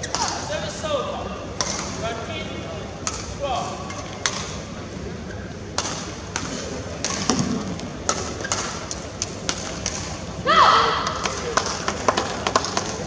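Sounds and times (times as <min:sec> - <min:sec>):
crowd murmur: 0:00.0 - 0:13.0
racket hitting shuttlecock: 0:03.0 - 0:04.6, 0:05.7 - 0:10.2.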